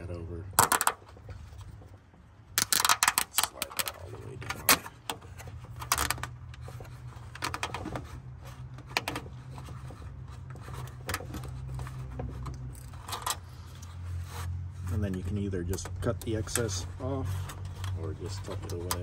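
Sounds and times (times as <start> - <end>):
plastic ties clicking and rattling: 2.5 - 8.0.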